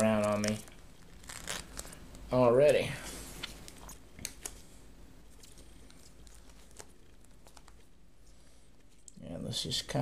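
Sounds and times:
plastic film crinkles and ticks: 0.0s - 2.8s, 5.3s - 7.9s.

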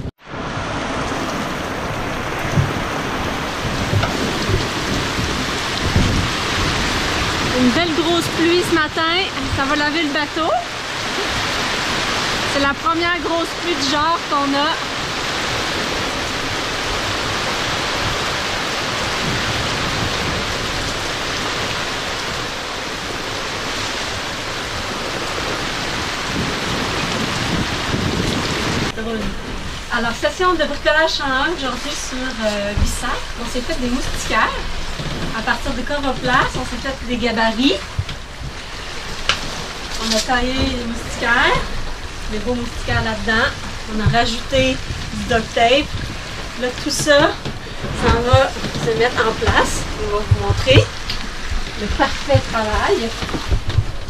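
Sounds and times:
heavy rain on a boat deck: 0.0s - 54.0s
dull low thumps: 1.9s - 7.6s, 32.5s - 54.0s.

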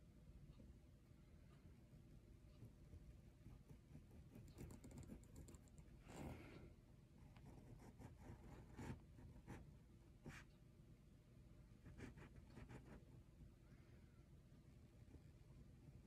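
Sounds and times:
pen scratching on paper: 7.4s - 9.6s, 11.8s - 13.0s.

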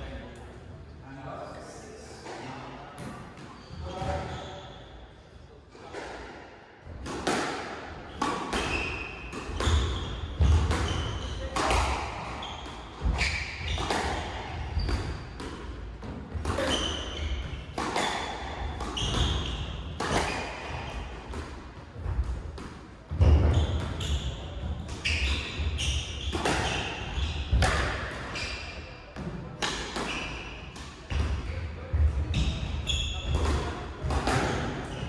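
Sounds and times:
shoes squeaking on wooden floor: 23.3s - 28.7s.

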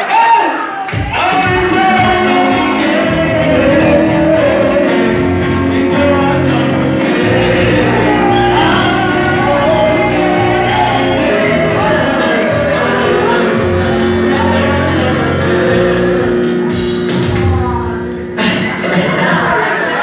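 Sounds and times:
amplified instrumental backing: 0.9s - 20.0s
choir singing: 1.2s - 16.2s.

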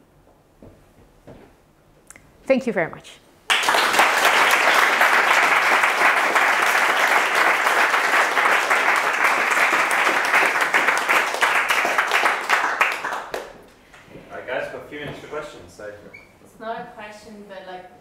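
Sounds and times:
audience applauding: 3.5s - 13.8s.

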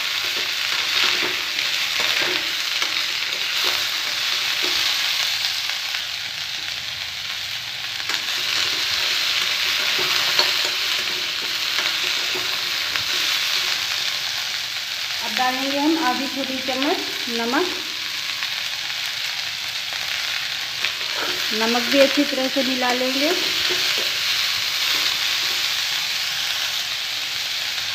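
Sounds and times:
spoon scraping and knocking pan: 0.0s - 5.3s, 8.1s - 14.3s, 20.8s - 26.1s
vegetables sizzling in oil: 0.0s - 27.9s.

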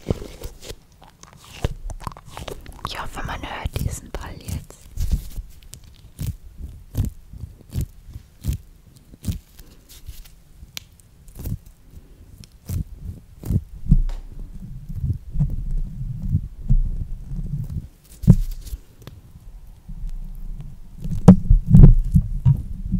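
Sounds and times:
stress balls squishing: 0.0s - 22.8s
soft low thumps: 12.7s - 18.6s, 19.7s - 22.9s.

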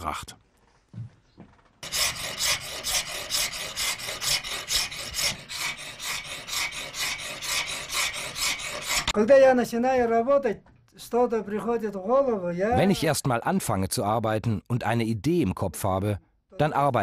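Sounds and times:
stone scraping on abrasive surface: 1.8s - 9.2s.

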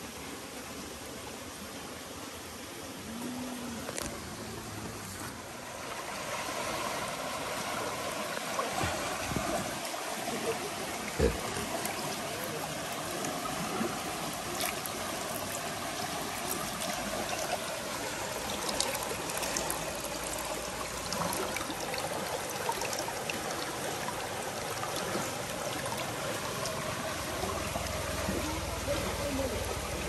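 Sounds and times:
stream water rushing: 0.0s - 30.0s
faint ticks and splashes: 7.6s - 30.0s.

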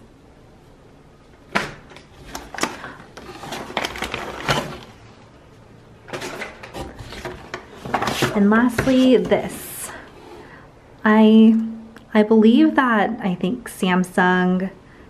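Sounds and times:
plastic and cardboard rustling: 1.5s - 5.2s, 6.0s - 10.0s.

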